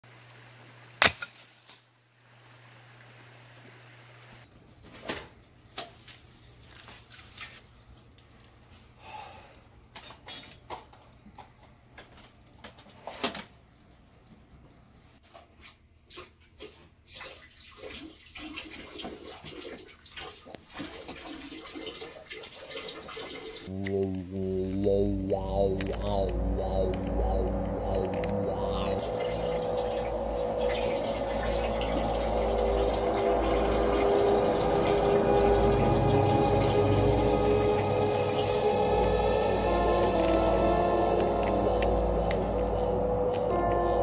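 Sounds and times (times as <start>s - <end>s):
running water: 25.8s - 38.8s.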